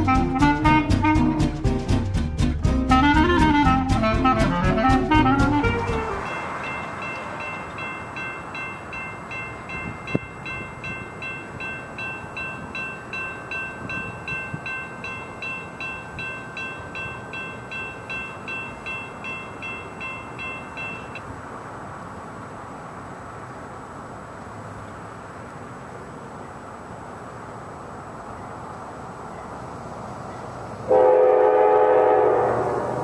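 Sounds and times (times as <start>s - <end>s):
railroad crossing bell dinging: 5.8s - 21.3s, 30.2s - 32.8s.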